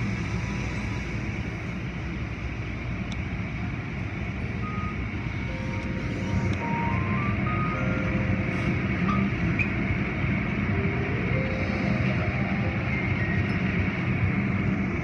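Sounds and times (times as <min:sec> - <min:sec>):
short electronic beeps: 0:04.6 - 0:06.0, 0:06.6 - 0:08.4.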